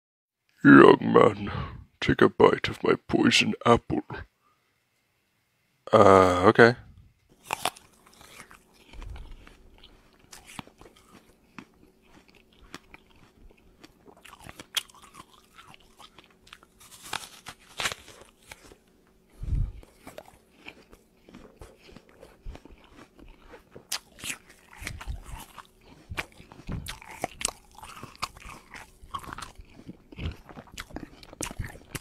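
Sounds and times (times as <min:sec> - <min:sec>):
crunching and chewing an apple: 0:07.3 - 0:32.0.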